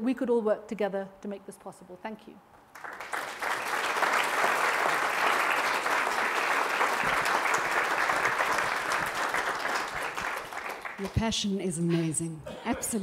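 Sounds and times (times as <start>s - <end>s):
audience applauding: 2.7s - 11.2s.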